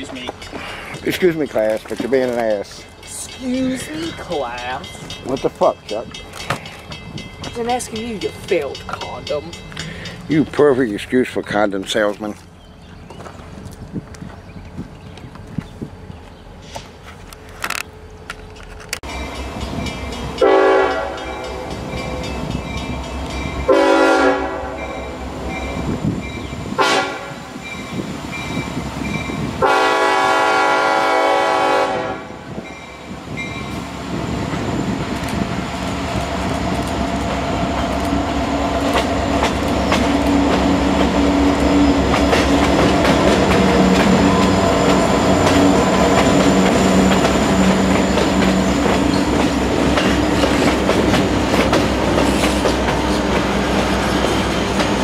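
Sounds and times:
wheels clacking on rail joints: 0.0 - 29.8, 32.6 - 55.0
diesel locomotives passing: 0.0 - 55.0
locomotive horn blasts: 20.4 - 21.7, 23.7 - 25.0, 26.8 - 27.4, 29.6 - 32.4.

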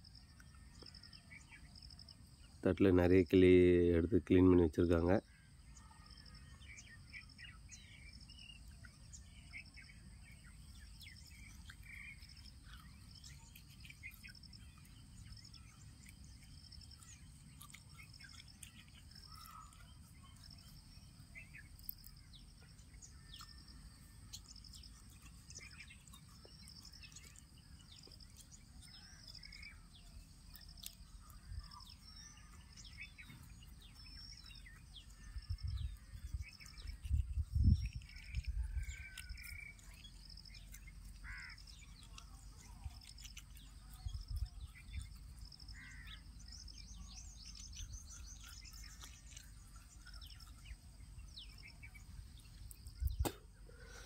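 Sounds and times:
bird chirps: 0.0 - 54.0
insect chirping rhythmically: 6.2 - 54.0.

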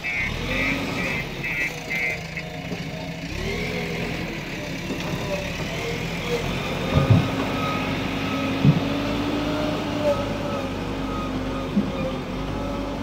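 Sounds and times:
diesel engine running: 0.0 - 13.0.

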